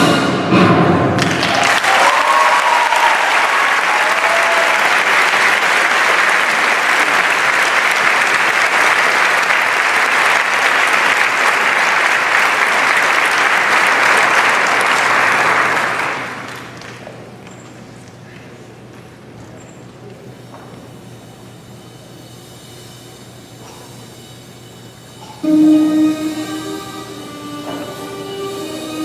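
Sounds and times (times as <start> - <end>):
audience applauding: 1.2 - 17.4.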